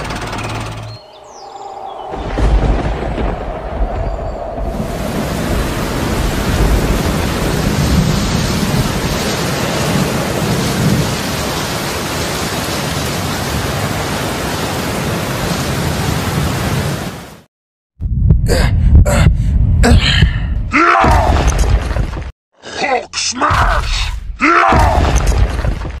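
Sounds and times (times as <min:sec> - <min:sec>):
low rumbling thunder: 0:01.8 - 0:11.6
heavy rain hissing: 0:04.7 - 0:17.4.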